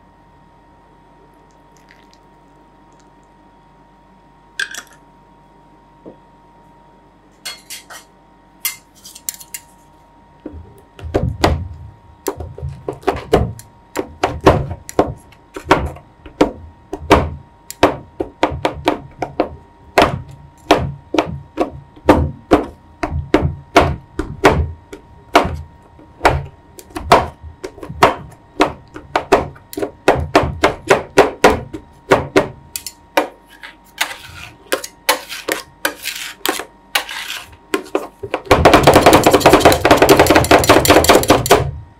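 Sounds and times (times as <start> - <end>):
spatulas scraping steel plate: 33.5 - 38.0.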